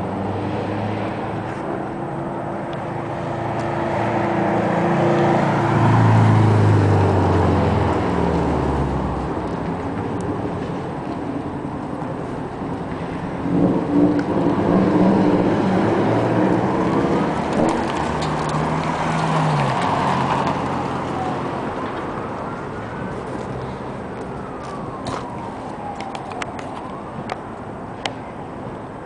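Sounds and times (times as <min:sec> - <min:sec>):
vehicle engine rumble: 0:00.0 - 0:29.0
faint siren: 0:13.6 - 0:28.6.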